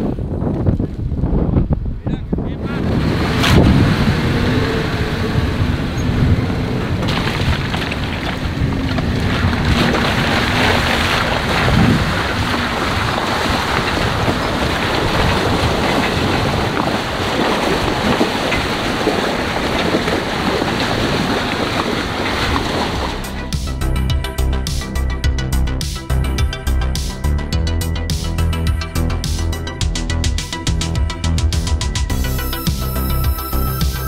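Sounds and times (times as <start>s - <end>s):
wind buffeting microphone: 0.0s - 24.9s
road noise: 0.0s - 34.0s
off-road vehicle engine running: 2.0s - 34.0s.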